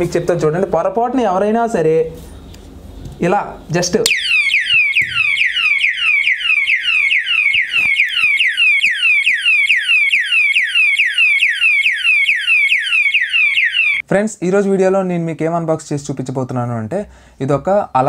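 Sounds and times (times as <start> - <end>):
electronic siren alarm: 4.1 - 14.0.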